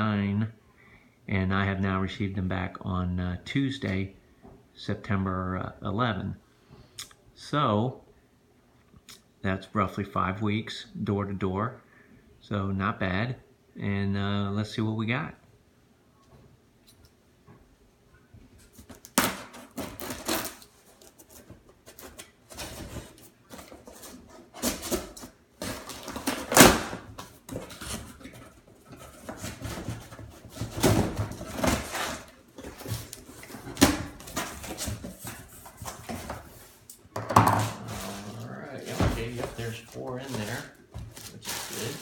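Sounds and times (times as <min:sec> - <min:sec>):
cardboard flaps rustling: 0:18.6 - 0:36.8, 0:37.5 - 0:42.0.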